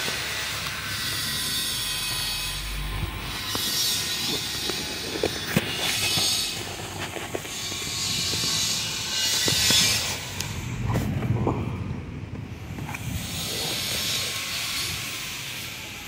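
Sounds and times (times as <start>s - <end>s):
low rumble: 1.5s - 3.5s, 10.1s - 14.2s
hiss: 12.8s - 16.0s.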